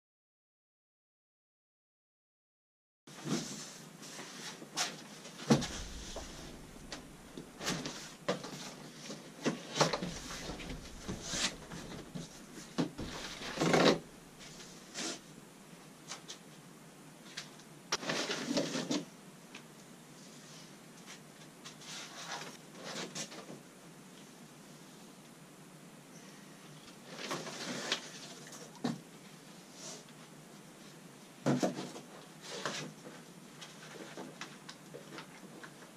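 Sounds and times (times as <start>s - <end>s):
cardboard scraping and rustling: 4.8s - 8.1s, 9.9s - 15.2s
knocks of parts lifted out: 5.5s - 8.0s, 9.9s - 14.7s
cardboard box thud: 10.0s - 14.6s.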